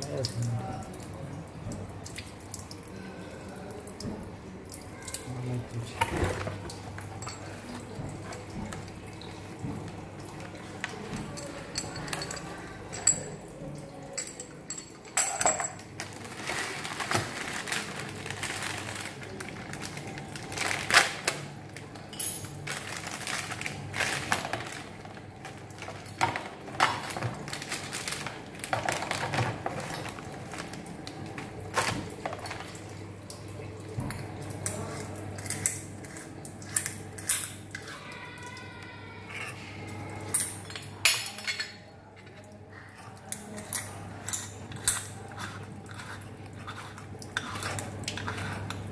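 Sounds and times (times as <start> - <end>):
plastic wrapping rustling: 15.8 - 33.1.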